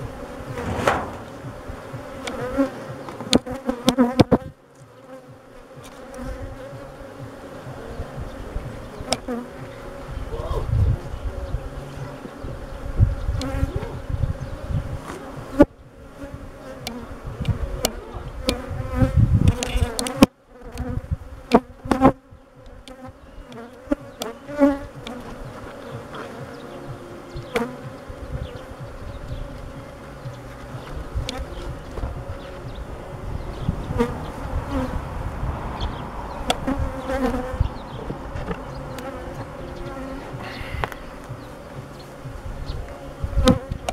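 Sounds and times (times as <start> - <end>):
wind rumble on microphone: 0.0 - 3.0, 5.8 - 24.1, 24.8 - 43.9
bees buzzing: 0.0 - 43.9.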